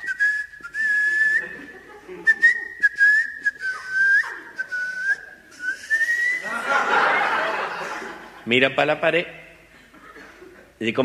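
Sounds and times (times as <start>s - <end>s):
man whistling a tune: 0.0s - 1.6s, 2.2s - 6.5s.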